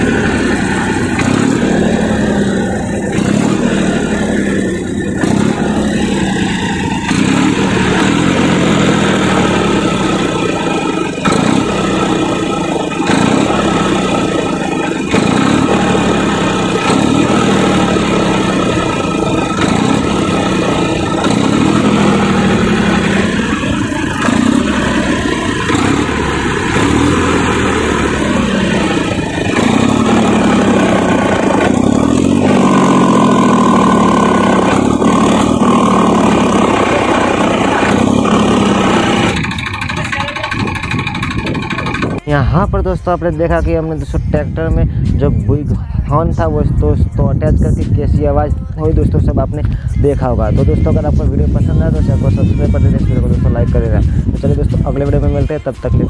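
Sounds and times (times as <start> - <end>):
tractor exhaust horn drone: 0.0 - 42.3
higher steady tone: 0.0 - 44.1.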